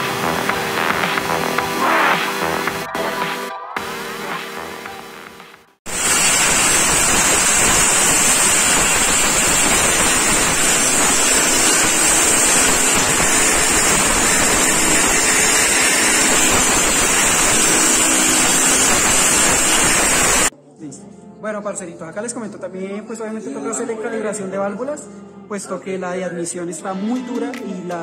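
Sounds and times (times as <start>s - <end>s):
compressed air spray gun hissing: 5.9s - 20.5s.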